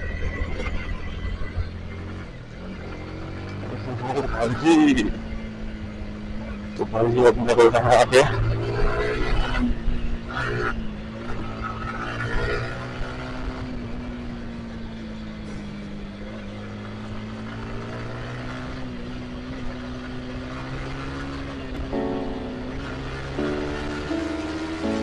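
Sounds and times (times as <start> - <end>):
motorcycle engine cruising: 0.0 - 25.0
wind and road noise: 0.0 - 25.0.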